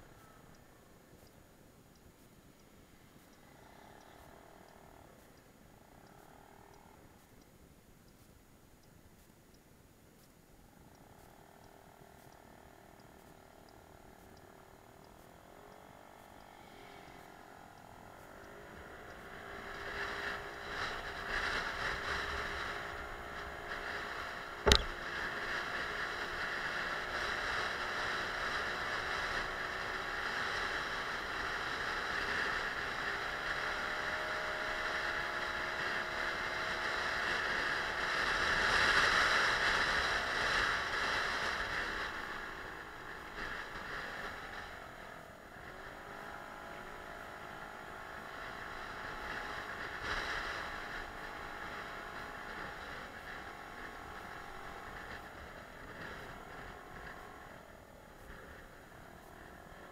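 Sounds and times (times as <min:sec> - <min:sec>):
wind and road noise: 0:00.0 - 0:59.9
moped engine running: 0:10.7 - 0:59.9
sharp knock: 0:24.7 - 0:25.0.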